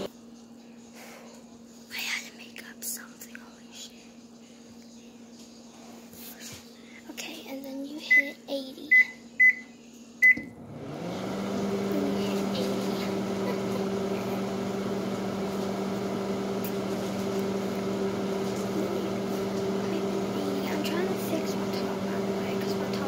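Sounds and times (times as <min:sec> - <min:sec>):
microwave keypad beeps: 0:08.1 - 0:10.6
microwave humming: 0:10.2 - 0:23.0.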